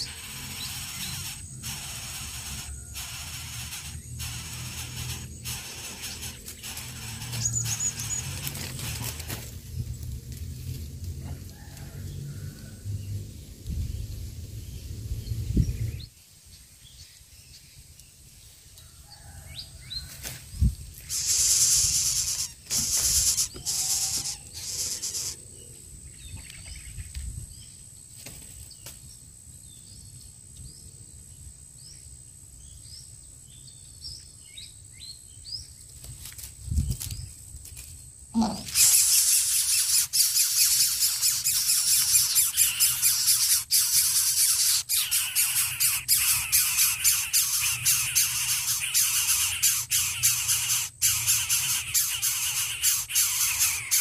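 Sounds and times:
short hissing bursts: 0.0 - 8.4, 21.0 - 25.4, 38.6 - 54.0
small birds chirping: 0.0 - 10.1, 19.1 - 27.8, 38.3 - 54.0
nestlings begging with rattling hiss: 0.0 - 16.2, 18.4 - 29.0, 36.0 - 54.0.

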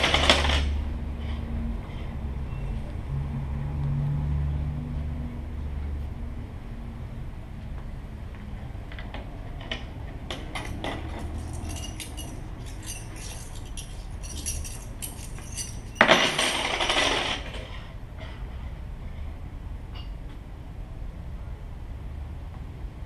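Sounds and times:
coins clinking in hand: 10.5 - 17.4
coins thrown onto wooden table: 10.5 - 17.6.

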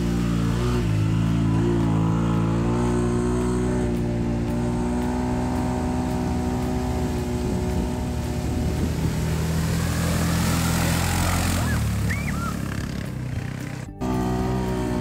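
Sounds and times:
atv engine running: 0.0 - 15.0
tyres splashing water: 4.0 - 13.6.

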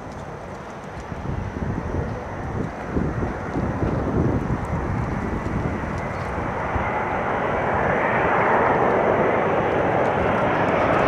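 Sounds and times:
jet engines rushing: 0.0 - 11.0.

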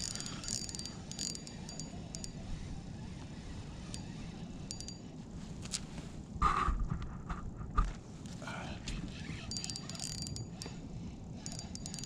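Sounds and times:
fishing reel clicking: 0.0 - 2.4, 3.9 - 5.0, 9.4 - 10.8, 11.4 - 12.0.

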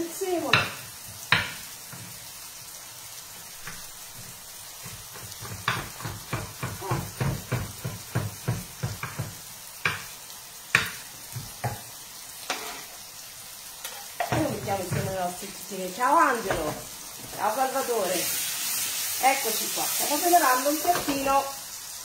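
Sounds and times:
vegetables sizzling in a pan: 0.0 - 22.0
knife chopping on wooden board: 0.5 - 2.0, 4.8 - 10.1, 10.7 - 11.8.

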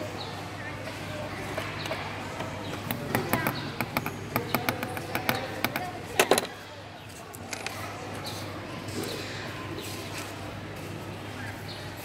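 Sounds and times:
hand tools clicking and tapping: 1.5 - 6.5.

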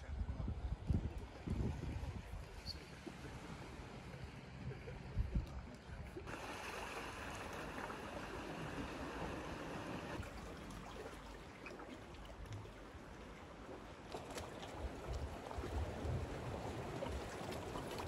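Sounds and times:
sea water washing over rocks: 6.3 - 11.6, 14.0 - 18.0.

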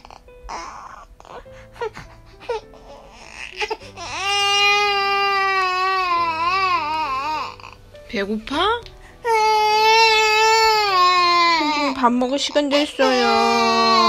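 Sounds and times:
infant whimpering and wailing: 0.0 - 7.8, 9.2 - 14.0.

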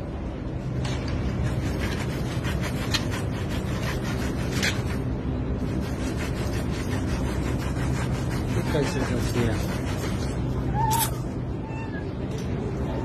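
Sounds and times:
steady low hum: 0.0 - 13.0
hands rubbing and scraping a pipe: 0.9 - 11.2.

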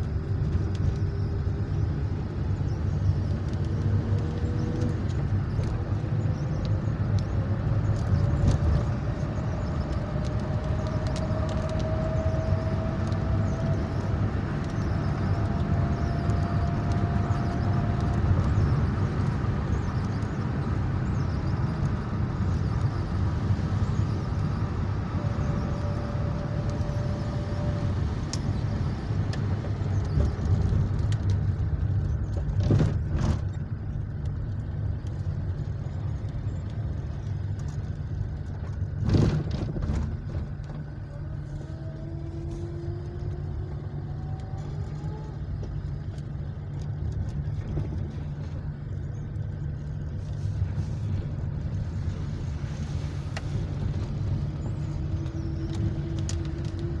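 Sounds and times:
car driving on wet road: 0.0 - 57.0.

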